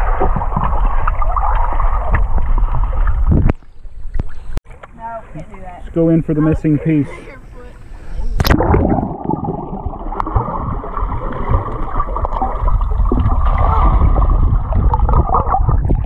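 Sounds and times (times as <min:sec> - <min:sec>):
underwater rumbling and bubbling: 0:00.0 - 0:05.0, 0:08.2 - 0:16.0
splash into water: 0:08.4 - 0:16.0.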